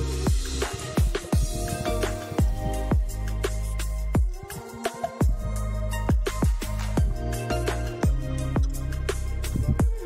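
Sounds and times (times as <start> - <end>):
electronic music: 0.0 - 10.0
kick drum beat: 0.3 - 1.7, 2.4 - 3.2, 4.2 - 4.5, 5.2 - 5.4, 6.1 - 7.2, 8.0 - 8.8, 9.6 - 10.0
heavy sustained bass: 1.4 - 4.3, 5.2 - 10.0.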